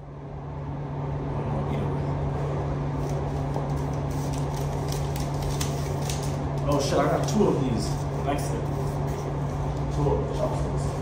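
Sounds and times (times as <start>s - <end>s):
low mechanical hum: 0.0s - 11.0s
paper rustling: 3.0s - 10.0s.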